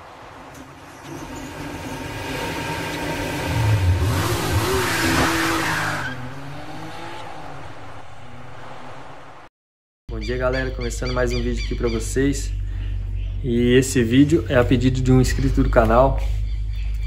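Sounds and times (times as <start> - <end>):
car engine revving: 0.1 - 9.4
tyre screech: 0.6 - 6.4.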